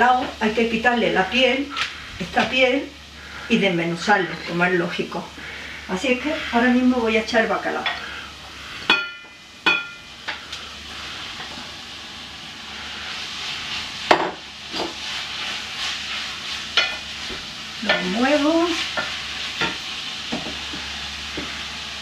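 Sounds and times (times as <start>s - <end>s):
fish sizzling in hot oil: 0.0s - 22.0s.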